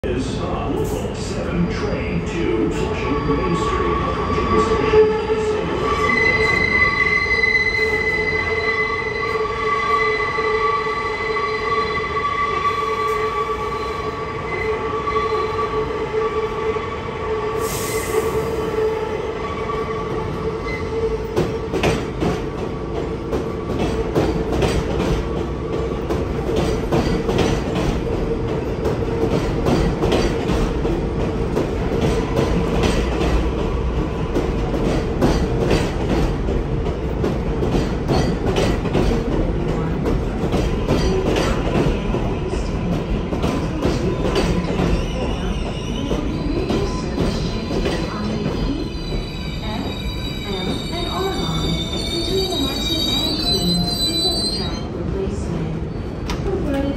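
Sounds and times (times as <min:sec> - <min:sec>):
train wheels squealing: 0:02.8 - 0:15.7, 0:44.3 - 0:54.9.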